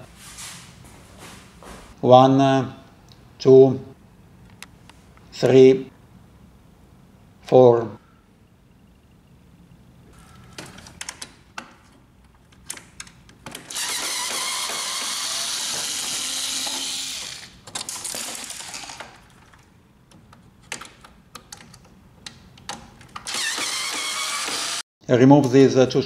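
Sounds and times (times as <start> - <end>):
electric screwdriver running: 13.7 - 19.0, 23.3 - 24.8.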